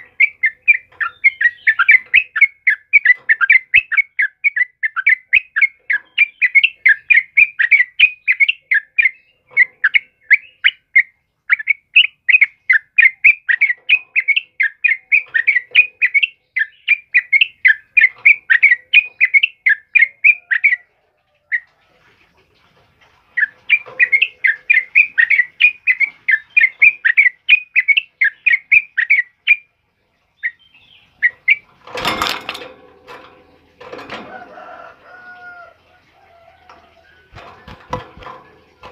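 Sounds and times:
bulbul singing chattering notes: 0.0s - 20.9s, 23.4s - 29.7s.

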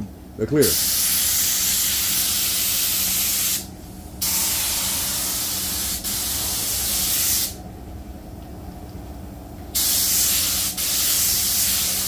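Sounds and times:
paint spray gun hissing: 0.8s - 3.6s, 4.2s - 7.6s, 9.8s - 12.0s.

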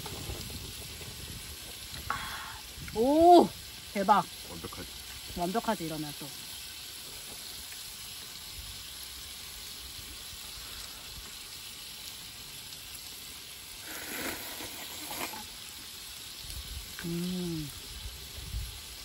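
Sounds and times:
steady hiss: 0.0s - 19.0s
noodle slurping: 13.8s - 15.5s.

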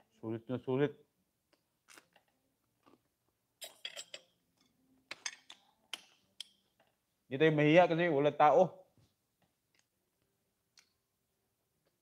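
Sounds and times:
cutlery clinking on a plate: 3.6s - 4.4s.

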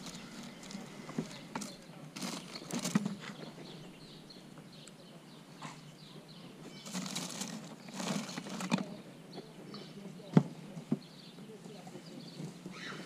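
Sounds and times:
small bird chirping: 0.0s - 10.3s.

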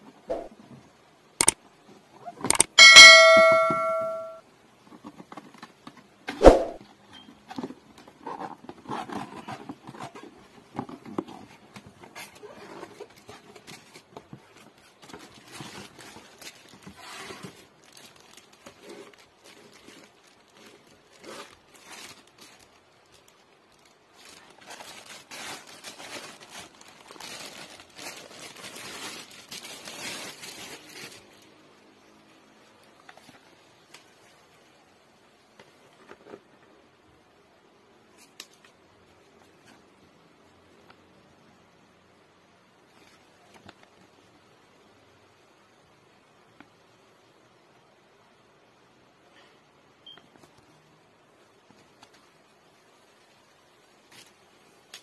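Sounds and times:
plastic bag crinkling: 14.8s - 31.5s.

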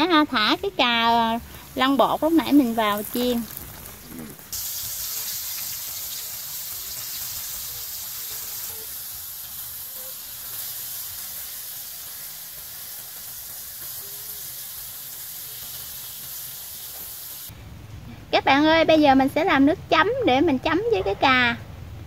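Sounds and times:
eggplant deep-frying in hot oil: 0.0s - 17.6s.

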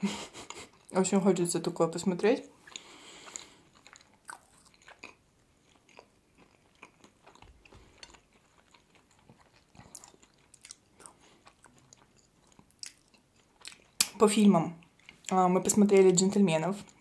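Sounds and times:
soft clicks of eating: 2.7s - 14.2s.

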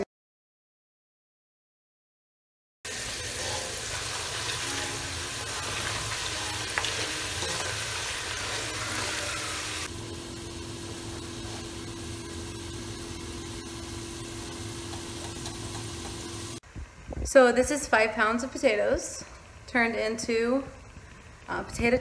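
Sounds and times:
potatoes sizzling in hot oil: 2.9s - 16.6s.

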